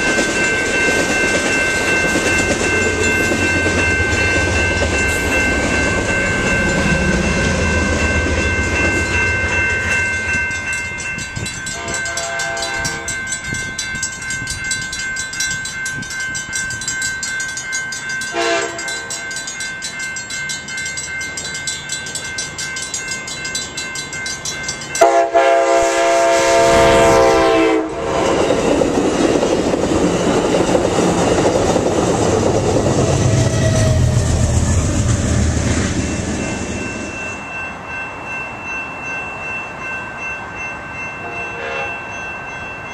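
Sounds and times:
crossing warning bells ringing: 0.0 - 42.9
locomotive horn blasts: 11.7 - 13.2, 18.3 - 19.1, 25.0 - 28.3, 41.2 - 42.0
train wheels clattering: 27.9 - 37.2.

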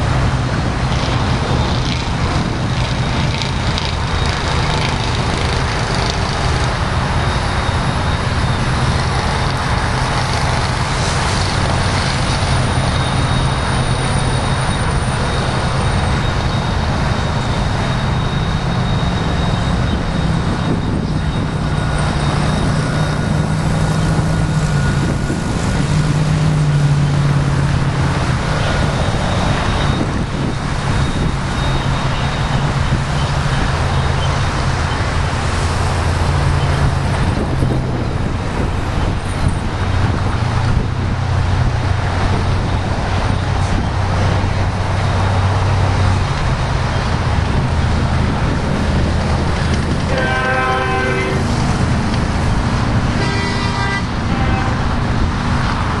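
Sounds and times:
freeway traffic: 0.0 - 56.0
freight train passing: 0.0 - 56.0
low engine drone: 0.0 - 56.0
horn: 50.1 - 51.5, 53.2 - 54.8.

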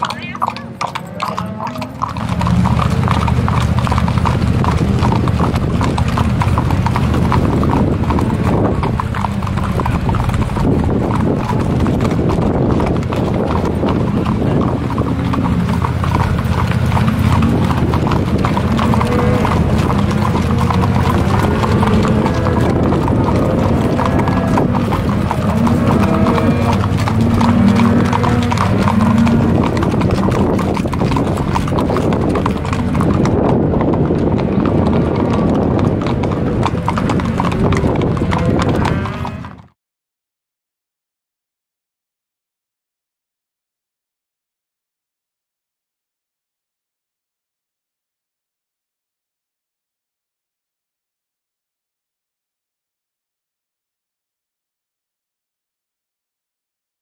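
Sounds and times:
hooves clip-clopping on asphalt: 0.0 - 39.8.

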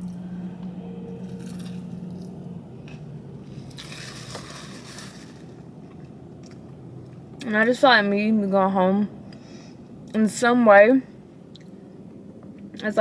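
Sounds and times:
person biting and chewing food: 1.0 - 7.2
loud crunching and scraping: 1.3 - 6.6.

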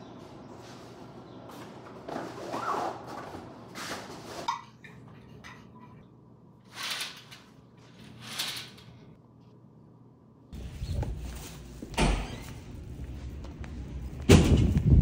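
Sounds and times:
rustling and handling noise: 10.6 - 13.7.

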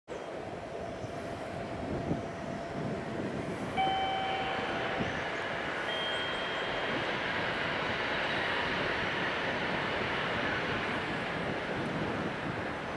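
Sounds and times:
freight train rumbling: 0.1 - 12.9
brief high steady tone: 3.8 - 7.0.

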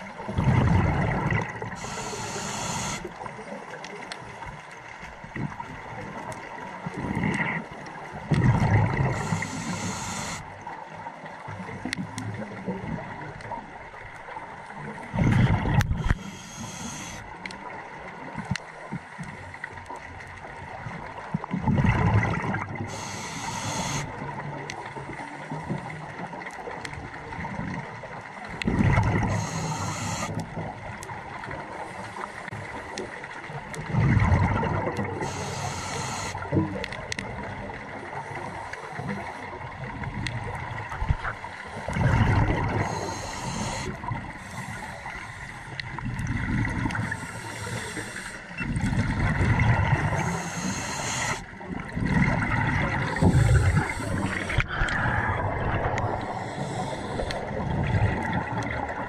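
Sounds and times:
bubbling exhale rumble: 0.2 - 3.1, 6.8 - 10.5, 15.0 - 17.2, 21.4 - 24.4, 28.6 - 30.8, 33.8 - 36.8, 39.1 - 59.0
regulator inhale hiss: 1.7 - 3.1, 9.1 - 10.5, 16.0 - 17.4, 22.9 - 24.2, 29.2 - 30.4, 35.2 - 36.4, 42.7 - 45.8, 46.9 - 48.6, 50.1 - 51.5, 53.1 - 55.2, 56.0 - 57.6.

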